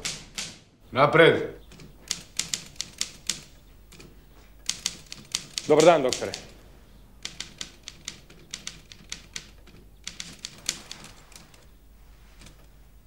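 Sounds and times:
typewriter key clacks: 0.0 - 0.6, 1.7 - 6.6, 7.2 - 11.7.

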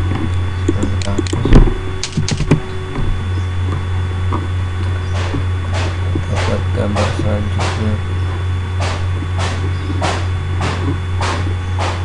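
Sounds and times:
steady low hum: 0.0 - 12.0
keyboard and mouse clicks: 0.7 - 2.6
loud knock: 8.8 - 12.0.

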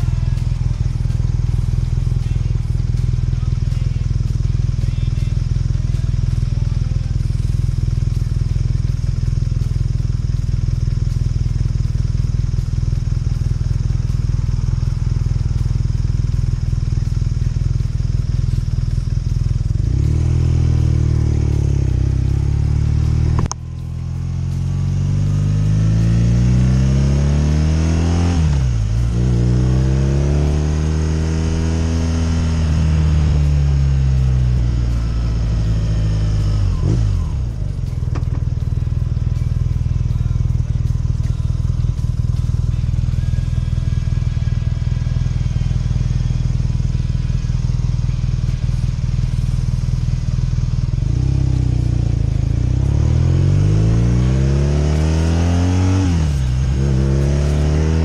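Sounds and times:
motorcycle engine idling and revving: 0.0 - 58.0
gear shift click: 23.4 - 23.6.

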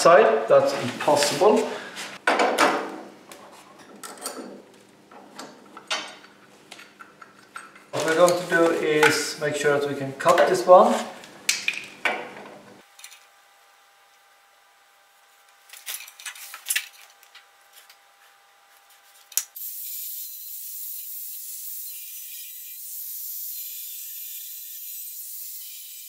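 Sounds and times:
tools clicking and knocking: 3.8 - 7.9
angle grinder cutting steel: 19.6 - 26.0.

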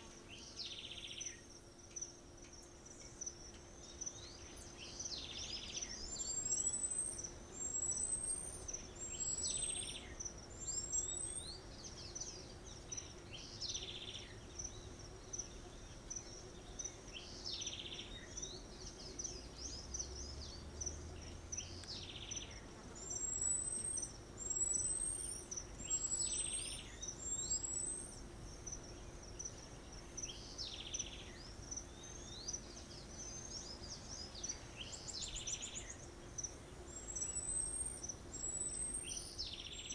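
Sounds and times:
high insect buzz: 0.0 - 39.9.

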